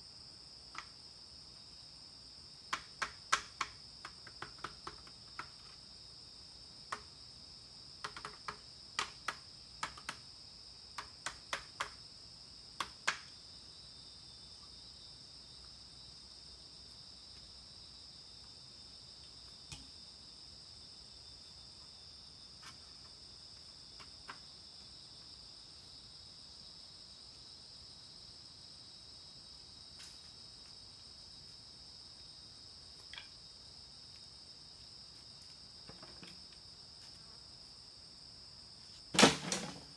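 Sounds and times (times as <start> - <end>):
insect chorus: 0.0 - 39.9
sharp clicks and knocks: 2.7 - 5.6, 8.0 - 10.2.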